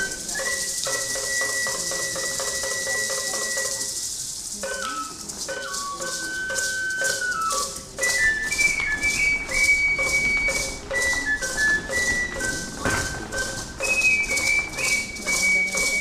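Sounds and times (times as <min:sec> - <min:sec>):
high cane flute melody: 0:00.0 - 0:16.0
rattle: 0:00.0 - 0:16.0
drum beat: 0:05.8 - 0:16.0.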